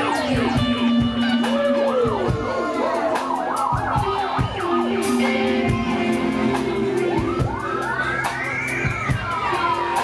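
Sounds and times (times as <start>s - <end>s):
drums: 0.0s - 10.0s
electric guitar bending notes: 0.0s - 10.0s
live rock band: 0.0s - 10.0s.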